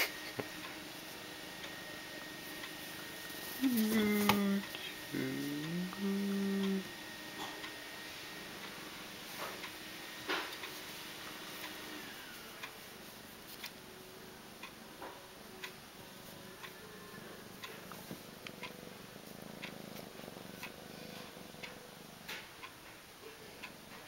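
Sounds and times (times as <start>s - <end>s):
alarm clock ticking: 1.5s - 8.8s, 15.5s - 16.9s, 17.5s - 22.0s
kitten purring: 3.6s - 6.9s, 17.8s - 22.5s.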